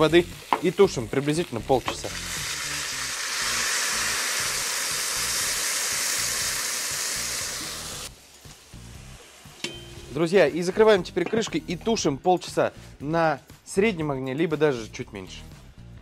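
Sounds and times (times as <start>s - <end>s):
water hissing in hot oil: 0.0s - 10.2s.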